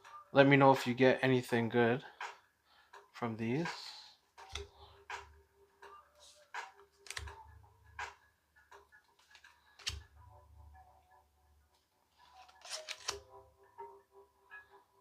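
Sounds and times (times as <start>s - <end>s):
cards shuffled and flipped: 4.4s - 5.3s, 6.2s - 7.4s, 9.1s - 10.1s, 12.1s - 13.3s
card snap: 6.6s - 7.4s, 9.3s - 10.0s, 12.4s - 13.2s.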